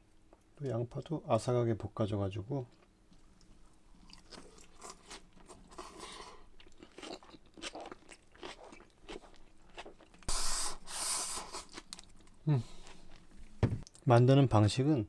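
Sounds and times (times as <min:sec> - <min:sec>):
person chewing crunchy food: 0:03.4 - 0:10.3, 0:11.3 - 0:13.6.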